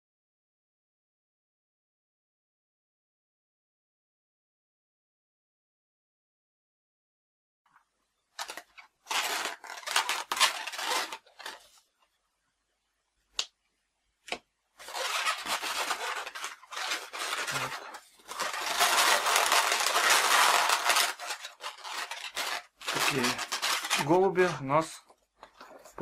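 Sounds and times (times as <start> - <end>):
balloons rubbing and rustling: 8.4 - 11.9, 14.8 - 25.0.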